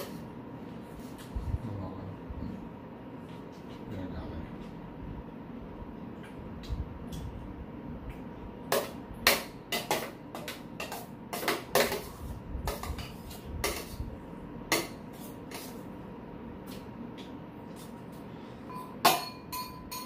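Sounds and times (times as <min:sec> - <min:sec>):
faint steady hum: 0:00.0 - 0:20.0
metal spoons clinking in bowls: 0:18.7 - 0:20.0.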